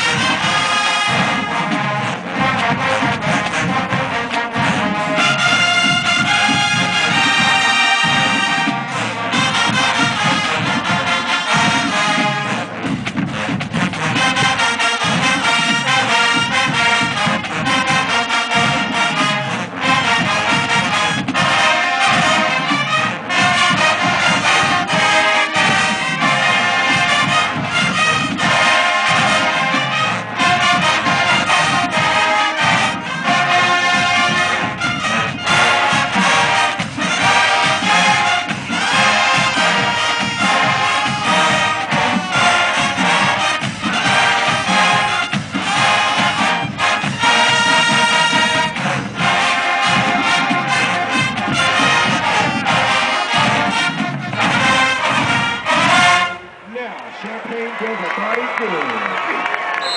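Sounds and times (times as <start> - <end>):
marching band brass playing: 0.0 - 59.9.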